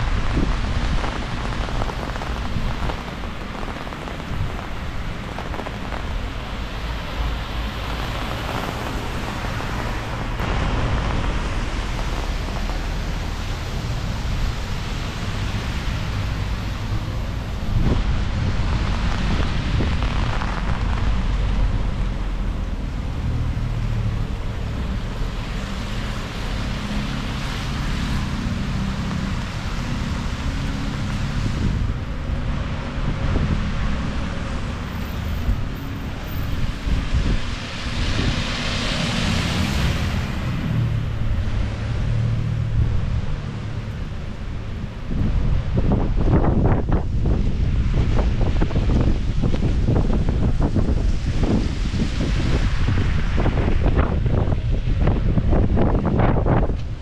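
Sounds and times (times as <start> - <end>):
falling rain hiss: 0.0 - 45.0
wind buffeting microphone: 0.0 - 57.0.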